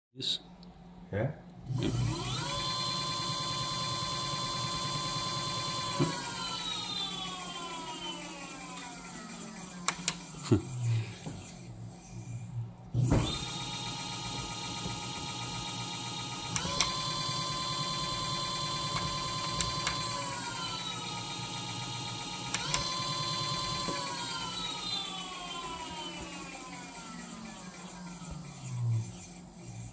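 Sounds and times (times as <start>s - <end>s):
electric motor whine: 1.7s - 12.4s, 13.0s - 29.9s
clicks: 18.9s - 20.1s.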